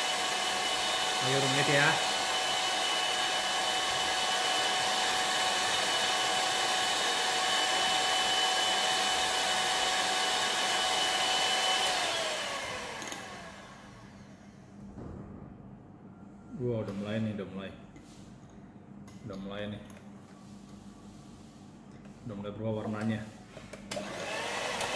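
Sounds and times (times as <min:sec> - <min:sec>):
electric hand mixer whining: 0:00.0 - 0:14.5, 0:23.9 - 0:24.9.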